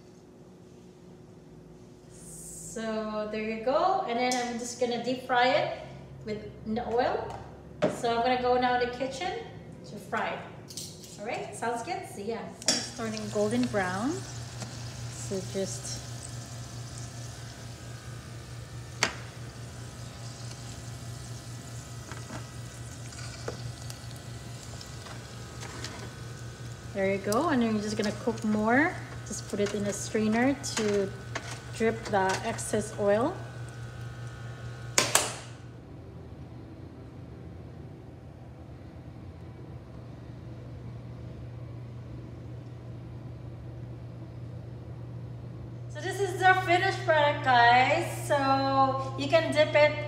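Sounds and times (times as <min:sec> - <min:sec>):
steady low hum: 0:00.0 - 0:50.0
onion rings deep-frying in oil: 0:12.6 - 0:35.2.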